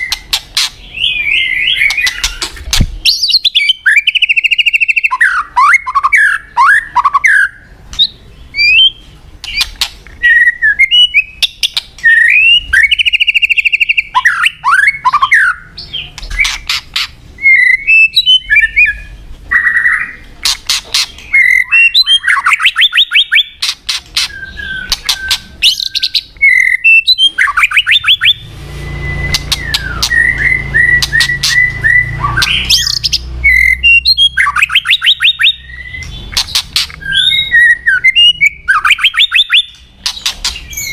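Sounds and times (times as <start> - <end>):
bird singing whistled phrases: 0.0 - 16.6, 17.4 - 20.2, 21.2 - 36.2, 37.0 - 39.8.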